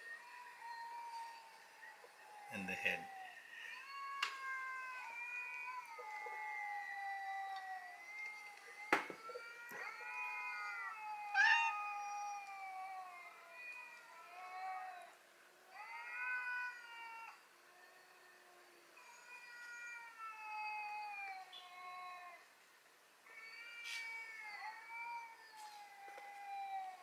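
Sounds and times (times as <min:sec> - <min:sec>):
cats yowling: 0:00.0 - 0:22.6, 0:23.2 - 0:27.0.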